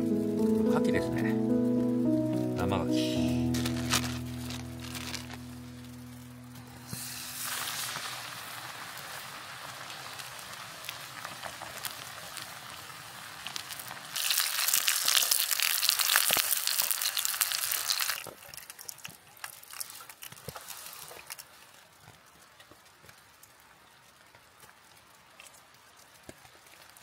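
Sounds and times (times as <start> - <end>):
batter deep-frying in hot oil: 6.7 - 27.0.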